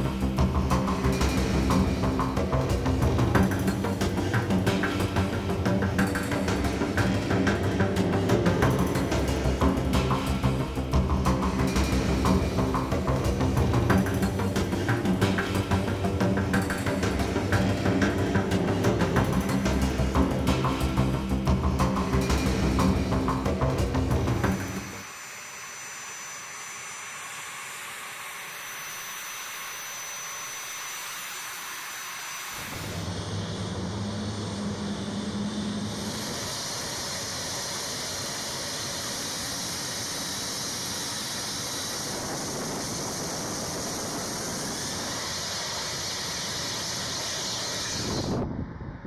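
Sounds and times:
jet engines whining: 0.0s - 49.0s.

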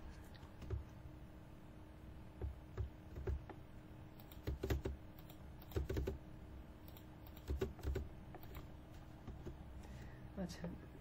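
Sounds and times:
keyboard typing: 2.4s - 3.6s, 4.2s - 6.2s, 6.8s - 9.6s.

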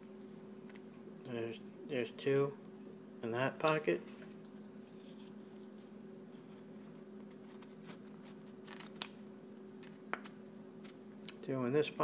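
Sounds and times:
faint steady hum: 0.0s - 12.0s
cards scraping against leather: 4.9s - 9.1s.

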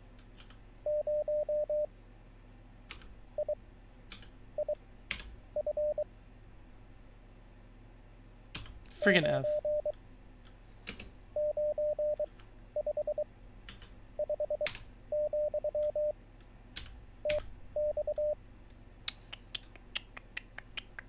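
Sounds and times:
morse code beeps: 0.8s - 1.9s, 3.4s - 3.6s, 4.6s - 4.8s, 5.6s - 6.0s, 9.4s - 9.9s, 11.4s - 13.2s, 14.2s - 16.1s, 17.2s - 18.4s.

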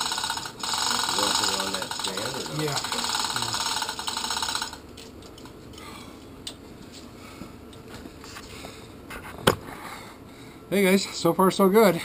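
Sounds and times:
chain hoist rattling: 0.0s - 4.8s.

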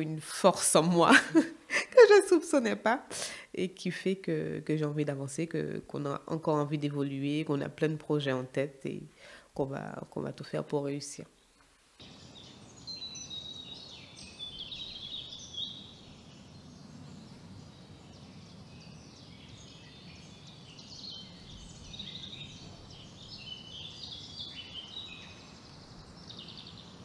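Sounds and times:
small birds chirping: 10.9s - 27.0s.

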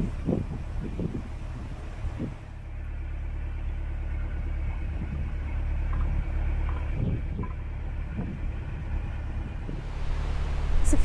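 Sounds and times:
wind buffeting microphone: 0.0s - 2.6s, 4.8s - 5.4s, 6.1s - 11.0s
diesel engine rumbling: 0.0s - 11.0s.

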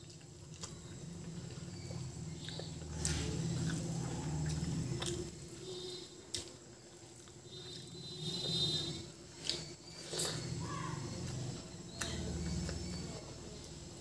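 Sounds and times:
close-up chewing: 0.0s - 14.0s.

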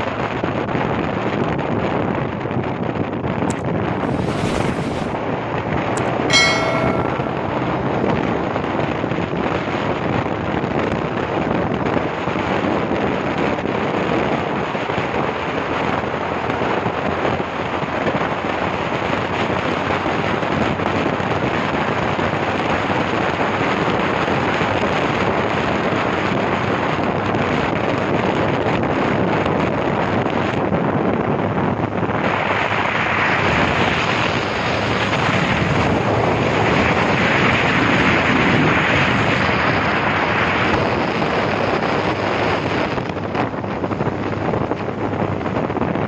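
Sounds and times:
wind buffeting microphone: 2.4s - 5.4s.

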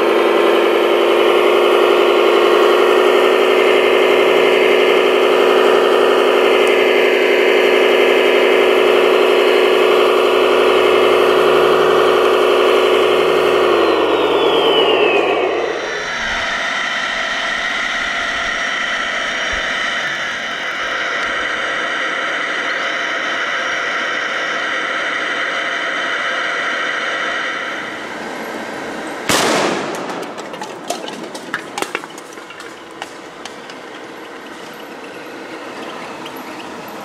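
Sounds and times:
machine drone with high whine: 0.0s - 37.0s
loud blast: 29.2s - 33.7s.

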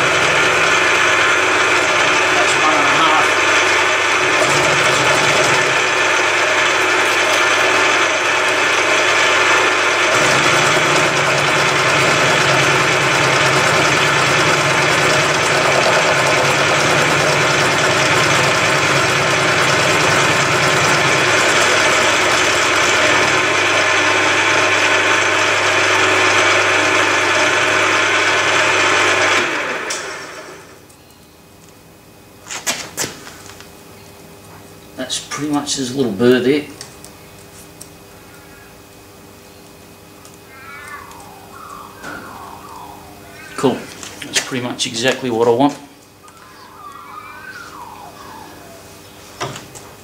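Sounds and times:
milling machine cutting steel: 0.0s - 30.2s.

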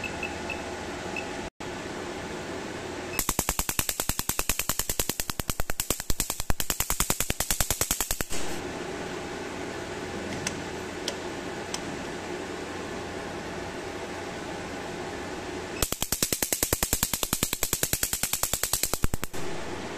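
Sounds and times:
steady hum: 0.0s - 19.9s
laser pulses snapping: 3.2s - 8.6s, 15.8s - 19.6s.

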